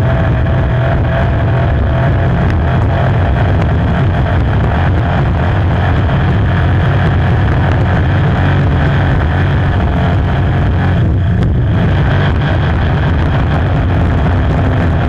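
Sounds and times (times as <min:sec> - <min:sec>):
boat engine running: 0:00.0 - 0:15.0.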